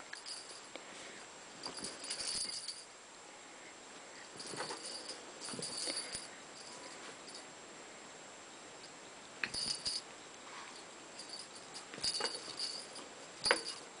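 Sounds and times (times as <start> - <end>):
collar tags jingling: 0.1 - 0.7, 1.6 - 2.9, 4.3 - 7.5, 9.4 - 10.1, 11.1 - 14.0.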